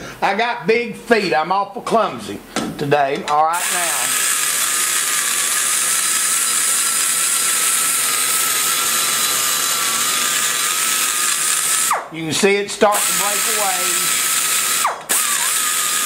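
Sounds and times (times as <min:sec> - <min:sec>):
die grinder whining: 0:03.5 - 0:12.1, 0:12.8 - 0:16.0
grinding hiss: 0:12.8 - 0:16.0.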